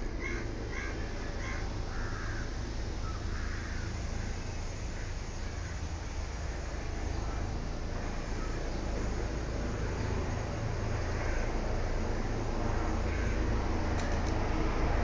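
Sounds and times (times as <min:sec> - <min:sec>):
crow cawing: 0:00.2 - 0:05.9, 0:11.0 - 0:11.8, 0:12.9 - 0:13.6.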